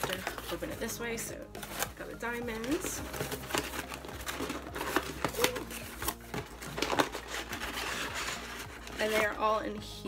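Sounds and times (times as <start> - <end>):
paper packing rustling: 0.0 - 0.8, 1.5 - 9.4
cardboard box being opened: 2.6 - 9.4.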